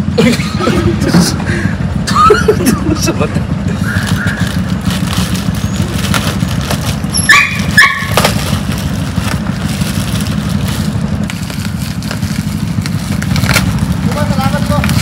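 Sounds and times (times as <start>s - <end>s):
low engine rumble: 0.0s - 15.0s
plastic bag crinkling: 3.9s - 15.0s.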